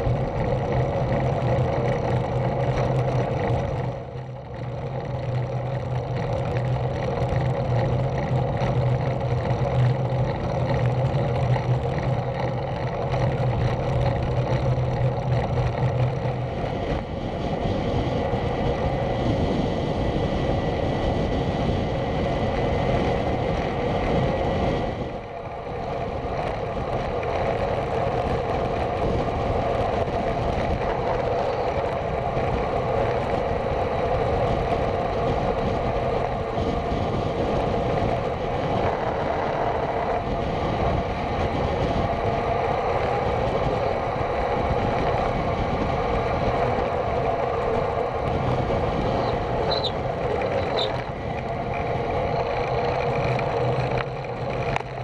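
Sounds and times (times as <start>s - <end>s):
bicycle tyres on tarmac: 0.0s - 55.0s
wind rush: 0.0s - 55.0s.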